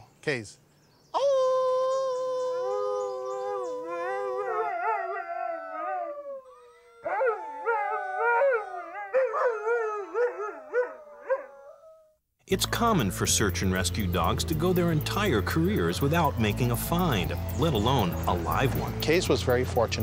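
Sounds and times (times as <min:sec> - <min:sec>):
children howling: 0:01.2 - 0:12.2
dog howling: 0:01.2 - 0:12.2.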